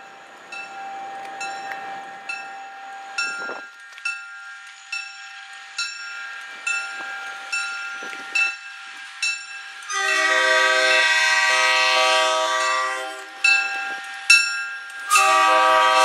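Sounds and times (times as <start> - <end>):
bell ringing: 0.0 - 9.8
diesel locomotive multi-note horn: 9.9 - 13.5, 15.0 - 16.0.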